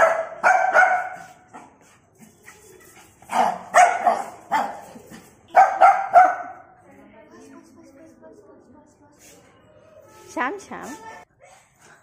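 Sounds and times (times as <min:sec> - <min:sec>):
puppy barking: 0:00.0 - 0:01.4, 0:03.3 - 0:06.7.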